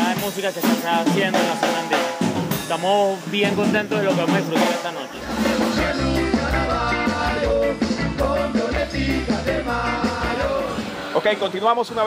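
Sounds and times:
ska band playing: 0.0 - 11.6
man singing: 4.2 - 10.8.

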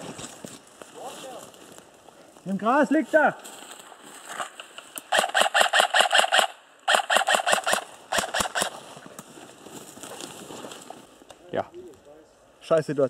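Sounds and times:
airsoft gun full-auto bursts: 5.1 - 8.8.

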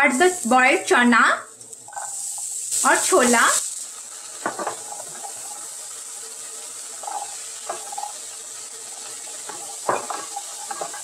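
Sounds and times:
spices sizzling in a wok: 0.0 - 11.0
spoon and bowl knocking on pan: 4.4 - 4.9, 9.5 - 11.0
wooden spoon stirring: 6.9 - 8.2, 9.4 - 11.0.

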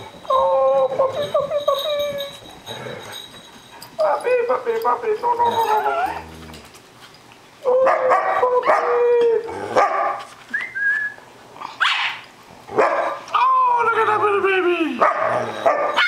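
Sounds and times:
dogs whining and yipping: 0.0 - 4.0, 5.2 - 6.7, 15.0 - 16.0.

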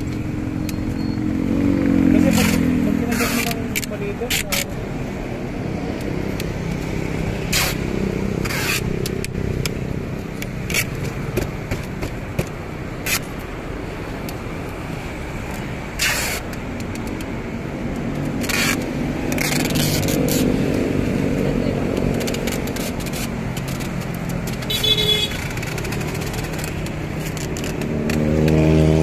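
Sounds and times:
vehicle rumble: 0.0 - 29.0
tape crackles and taps: 8.9 - 13.5, 16.4 - 20.9, 21.9 - 29.0.

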